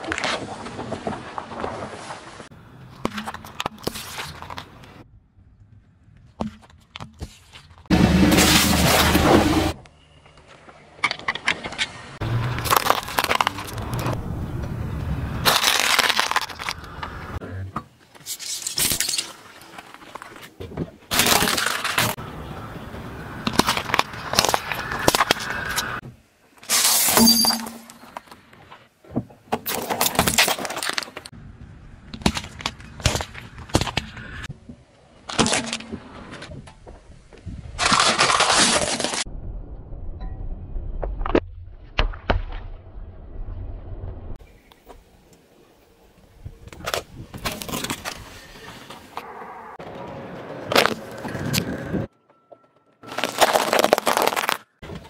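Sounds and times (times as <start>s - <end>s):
car tyre crushing candy: 12.2s - 14.2s, 15.4s - 17.4s, 21.1s - 22.2s, 23.4s - 26.0s, 37.8s - 39.3s, 53.0s - 54.8s.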